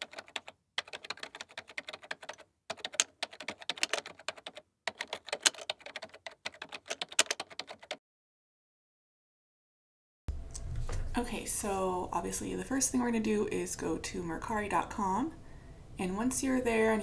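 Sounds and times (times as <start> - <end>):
keyboard typing clicks: 0.0 - 8.0.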